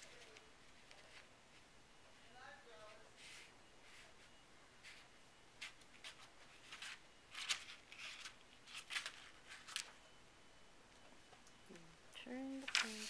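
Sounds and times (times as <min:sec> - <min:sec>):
paper pages rustling: 0:05.6 - 0:10.0, 0:12.6 - 0:13.0.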